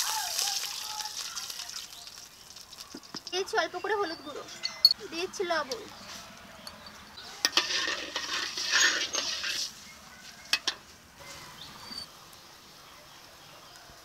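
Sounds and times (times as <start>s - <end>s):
spatula scraping metal pan: 7.3s - 9.8s.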